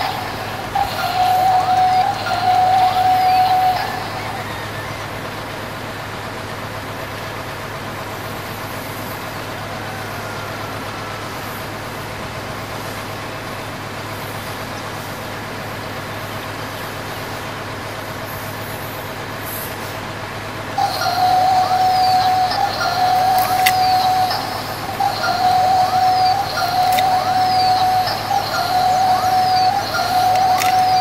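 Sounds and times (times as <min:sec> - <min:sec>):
toy excavator motor humming: 0:00.0 - 0:07.4, 0:20.6 - 0:31.0.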